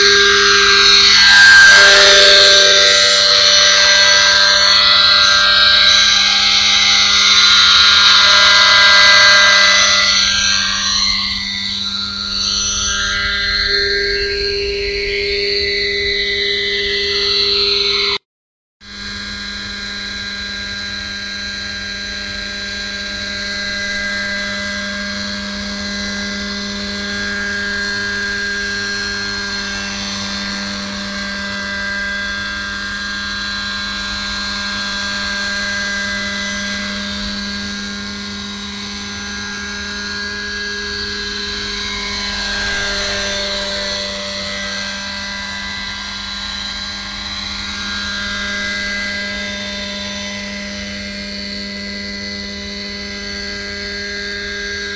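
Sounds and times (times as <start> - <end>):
model helicopter engine: 0.0 - 18.2, 18.9 - 54.9
rotor whine: 0.0 - 18.2, 18.8 - 54.9.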